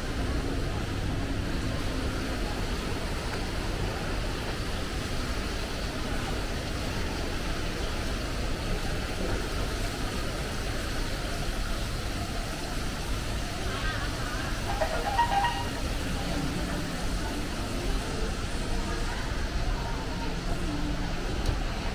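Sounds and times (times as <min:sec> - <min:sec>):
shopping mall rumble and hum: 0:00.0 - 0:21.9.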